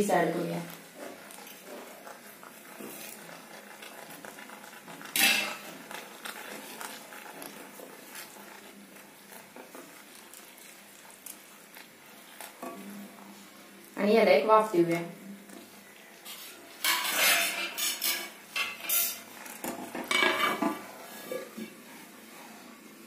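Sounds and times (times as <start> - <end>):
spatula stirring thick gravy: 0.0 - 14.5, 15.2 - 23.0
spatula scraping and knocking pan: 0.7 - 11.1, 16.3 - 21.9.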